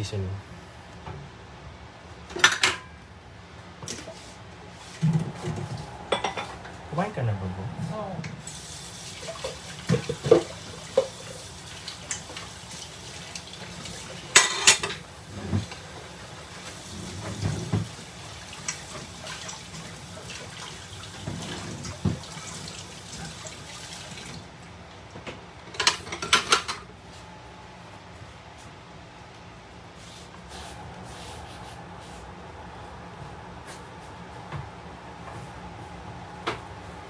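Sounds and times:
dishes and utensils clinking: 0:02.3 - 0:03.0, 0:05.0 - 0:06.7, 0:14.3 - 0:15.7, 0:25.7 - 0:26.9
water running into sink: 0:08.4 - 0:24.5.

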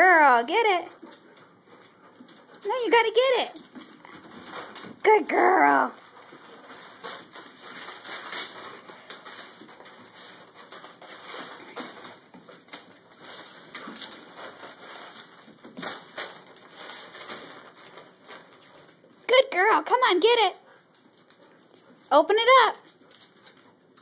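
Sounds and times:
dog ripping wrapping paper: 0:04.3 - 0:18.9.

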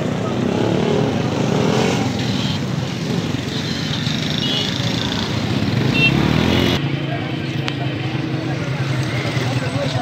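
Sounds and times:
street traffic noise: 0:00.0 - 0:10.0.

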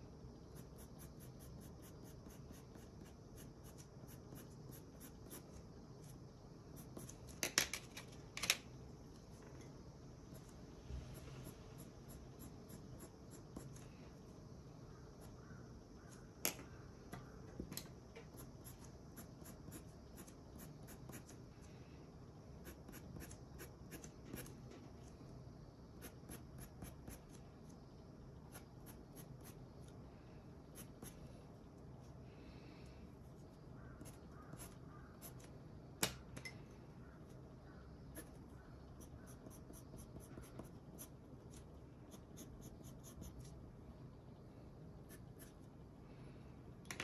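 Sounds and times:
colored pencil drawing on paper: 0:00.5 - 0:06.2, 0:11.1 - 0:13.8, 0:34.0 - 0:35.5, 0:38.1 - 0:43.5.

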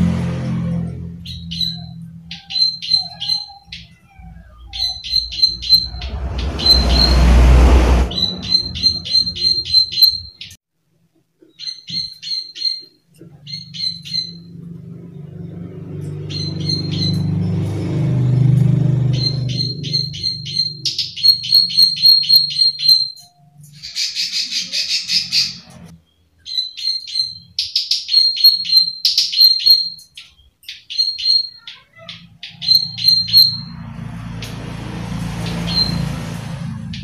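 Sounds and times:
low hum: 0:04.3 - 0:10.4
loud rushing noise: 0:05.2 - 0:10.2.

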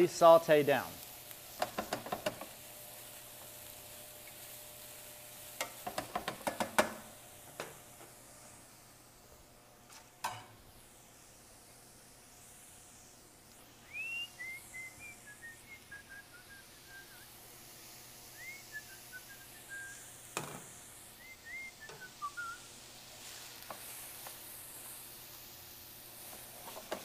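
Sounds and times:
vegetables sizzling in a pan: 0:00.0 - 0:27.0
person whistling a tune: 0:13.9 - 0:17.3, 0:18.4 - 0:20.0, 0:21.2 - 0:22.6.

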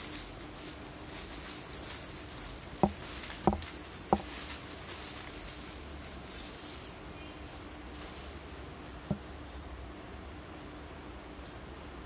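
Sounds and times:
plastic packaging crinkling: 0:00.0 - 0:09.3.

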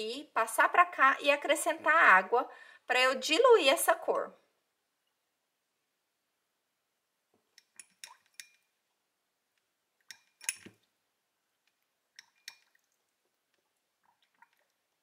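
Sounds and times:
paintbrush clinking on ceramic palette: 0:07.5 - 0:08.7, 0:10.0 - 0:10.9.

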